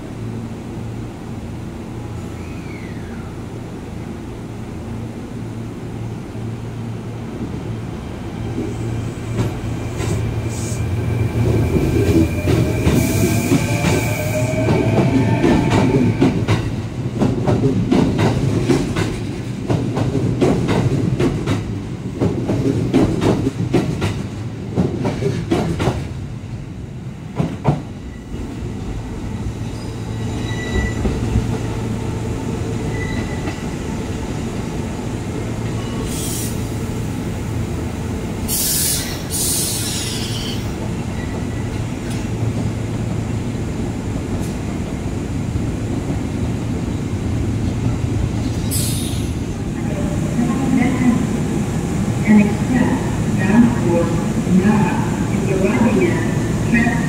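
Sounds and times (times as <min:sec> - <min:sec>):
train humming: 0:00.0 - 0:57.0
train rumble: 0:00.0 - 0:57.0
wheel squeals: 0:29.7 - 0:31.2.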